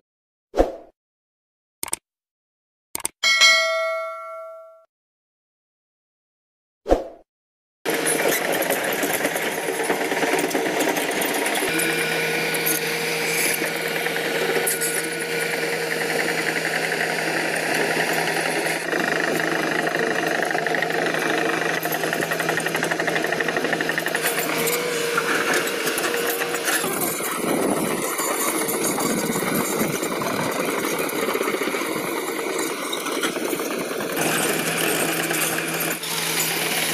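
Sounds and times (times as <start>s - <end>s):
rapid mechanical track clatter: 7.9s - 11.7s, 12.6s - 36.9s
excavator diesel engine running: 7.9s - 36.9s.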